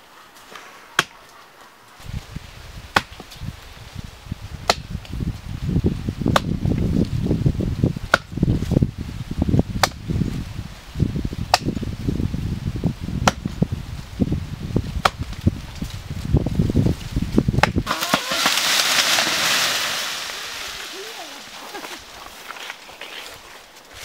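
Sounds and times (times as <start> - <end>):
axe chopping tree trunk: 2.9 - 3.3, 4.6 - 4.9, 6.3 - 6.6, 8.1 - 8.3, 9.8 - 10.0, 11.5 - 11.8, 13.2 - 13.6, 15.0 - 15.4, 17.6 - 19.3
steady hiss: 18.3 - 22.8.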